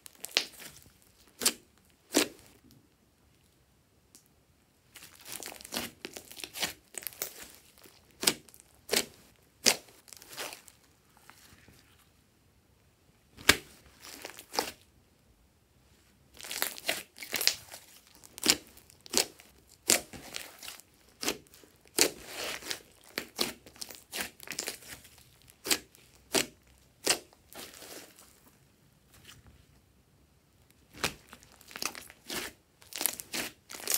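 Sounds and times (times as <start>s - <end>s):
wet slime squishing: 0.0s - 2.8s, 4.9s - 12.2s, 13.4s - 14.9s, 16.3s - 28.6s, 30.7s - 33.9s.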